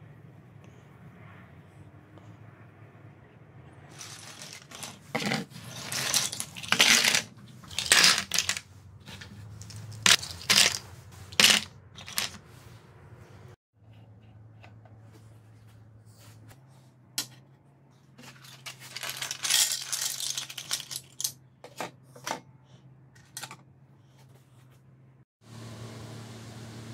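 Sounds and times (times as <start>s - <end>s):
plastic bottle caps rattling: 3.9s - 12.4s, 18.2s - 21.4s.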